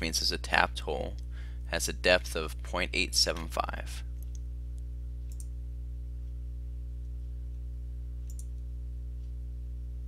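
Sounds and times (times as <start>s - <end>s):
electrical mains hum: 0.0s - 10.0s.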